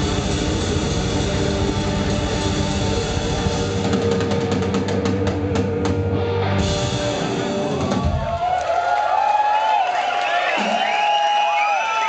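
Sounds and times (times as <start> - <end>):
live rock band playing: 0.0 - 8.5.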